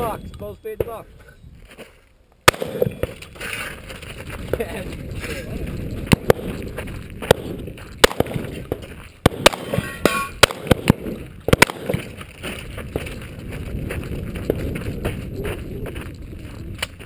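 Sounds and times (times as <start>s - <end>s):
shotgun shots: 2.5s - 3.3s, 7.2s - 12.2s
steel targets clanging: 9.7s - 10.4s.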